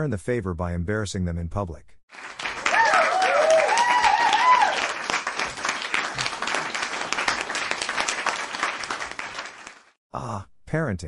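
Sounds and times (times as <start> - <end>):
audience applause: 2.1 - 10.0.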